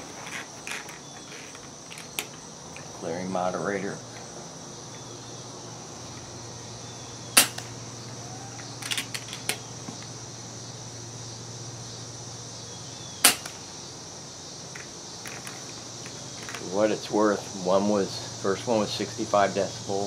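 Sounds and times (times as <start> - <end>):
air rifle shots: 7.4 - 7.8, 13.2 - 13.6.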